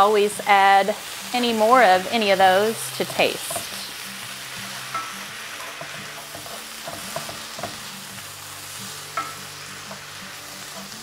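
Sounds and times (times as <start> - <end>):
vegetables sizzling in butter: 0.0 - 11.0
wooden spoon scraping a pan: 4.6 - 7.9.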